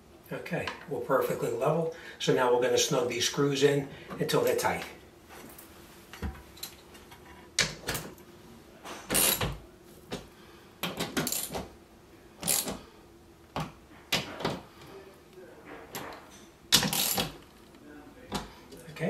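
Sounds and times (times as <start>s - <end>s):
ratchet wrench clicking: 12.4s - 12.7s, 16.8s - 17.3s.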